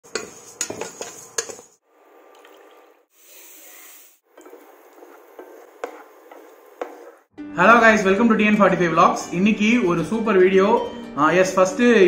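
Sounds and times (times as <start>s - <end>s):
steel ladle scraping a pot: 0.0s - 1.8s
sizzle of frying: 3.1s - 7.3s.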